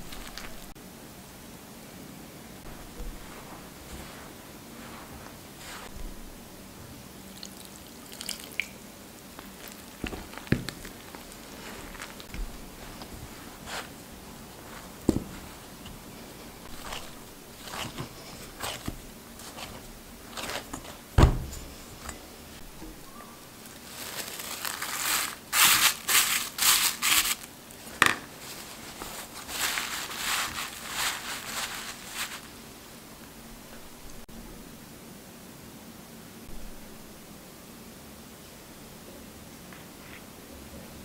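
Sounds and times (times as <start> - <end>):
towel rustling and crinkling: 0.0 - 0.8, 2.6 - 6.4, 9.4 - 32.9
hands kneading dough: 2.6 - 6.4, 9.3 - 32.6.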